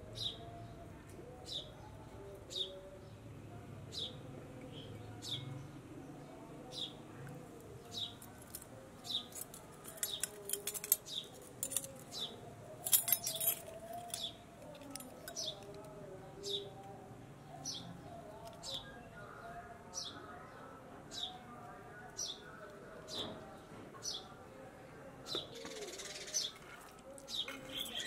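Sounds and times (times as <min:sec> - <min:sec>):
bird chirping: 0:25.3 - 0:28.0.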